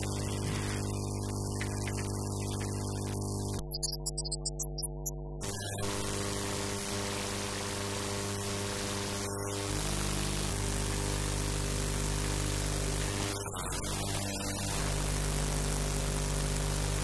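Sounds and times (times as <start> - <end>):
static hiss: 0.0 - 3.6
electrical buzz of low tones: 0.0 - 13.7.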